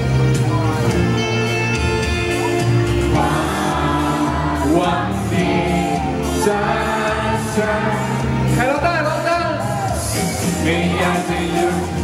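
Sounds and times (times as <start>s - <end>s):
pop backing music: 0.0s - 12.0s
man singing into microphone: 3.4s - 12.0s.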